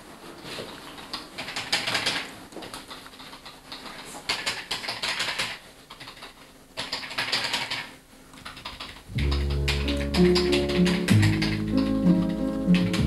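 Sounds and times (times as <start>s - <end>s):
fast keyboard typing: 1.0s - 13.0s
music with a bass line: 9.1s - 13.0s.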